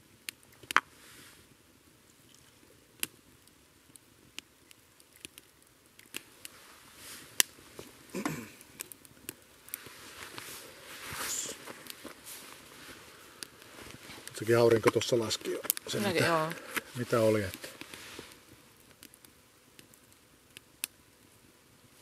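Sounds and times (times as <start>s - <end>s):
rustle: 0.0s - 22.0s
wood fire crackling and popping: 0.0s - 22.0s
scrape of handling: 9.7s - 14.3s.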